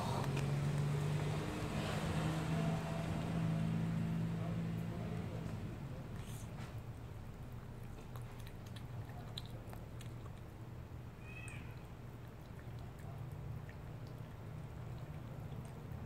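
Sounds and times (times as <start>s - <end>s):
cat mewing: 11.1s - 12.0s.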